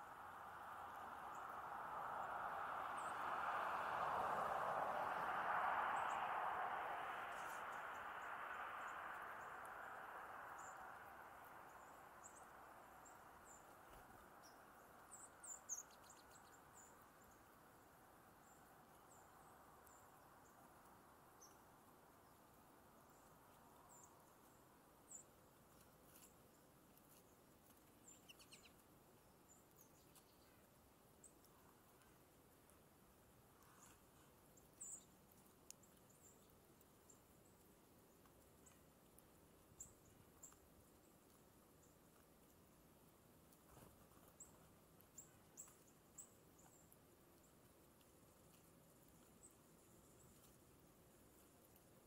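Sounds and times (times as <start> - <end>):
broad rushing noise: 0.0 - 12.7
small songbirds chirping: 0.0 - 52.0.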